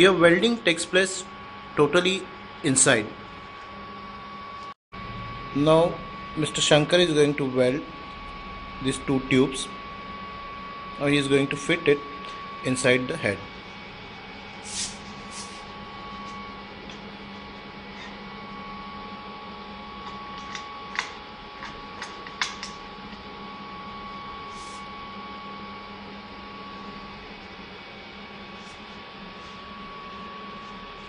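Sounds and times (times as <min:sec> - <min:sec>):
steady hum: 0:00.0 - 0:31.0.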